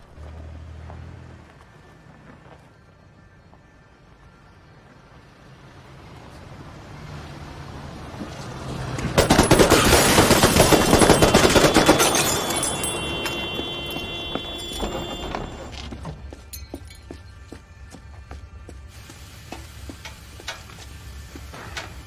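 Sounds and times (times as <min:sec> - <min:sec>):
submachine gun automatic fire: 0:09.2 - 0:12.2.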